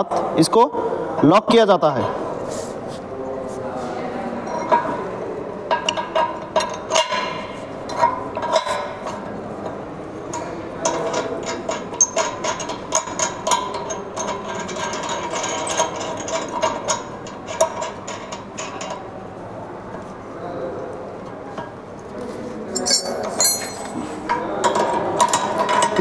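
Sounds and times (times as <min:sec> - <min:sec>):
metallic clicks and scraping: 0:05.7 - 0:09.3, 0:10.3 - 0:19.0, 0:21.5 - 0:26.0.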